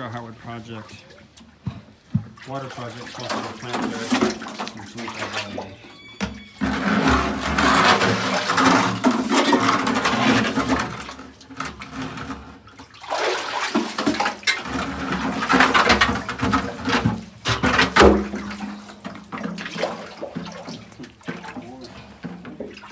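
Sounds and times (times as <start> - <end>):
water splashing and sloshing: 0.0 - 22.9.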